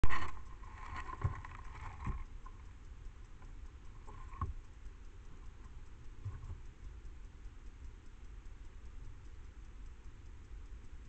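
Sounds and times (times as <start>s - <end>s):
faint steady hum: 0.0s - 11.0s.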